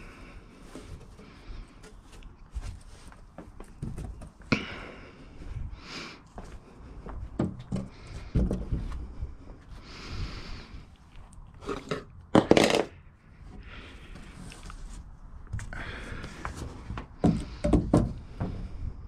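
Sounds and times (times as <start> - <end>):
wood knocking and scraping: 0.8 - 4.4, 7.2 - 9.2, 16.3 - 18.8.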